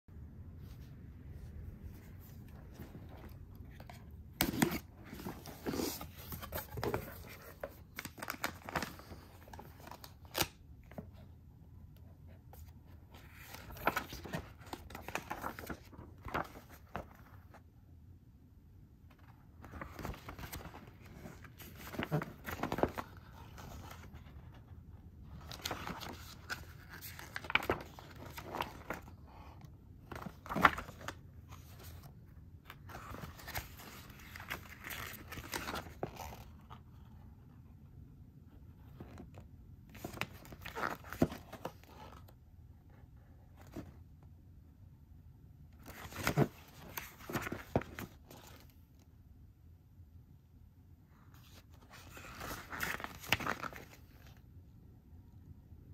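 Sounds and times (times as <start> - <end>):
paper pages rustling: 0.6 - 11.2, 12.2 - 17.6, 19.1 - 37.1, 38.8 - 42.3, 45.8 - 48.8, 51.3 - 54.4.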